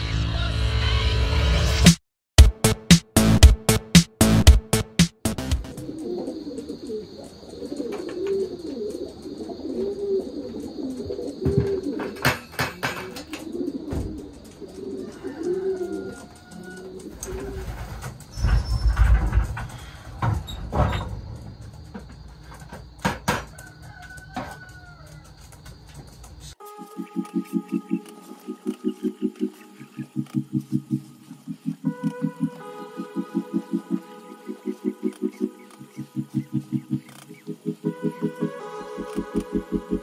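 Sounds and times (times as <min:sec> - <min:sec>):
pigeons cooing: 0:05.7 - 0:20.1, 0:27.0 - 0:40.0
scattered knocks: 0:20.2 - 0:23.5.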